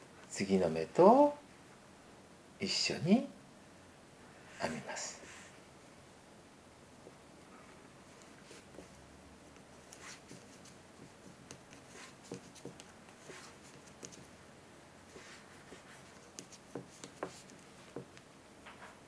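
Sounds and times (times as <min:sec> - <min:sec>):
yarn rubbing: 0:08.1 - 0:14.4, 0:15.1 - 0:18.2.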